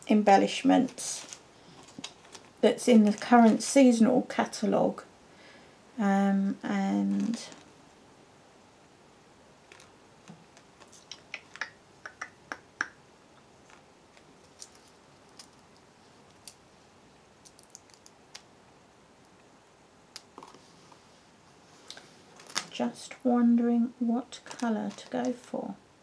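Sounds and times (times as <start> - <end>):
paper rustling: 9.7 - 9.9.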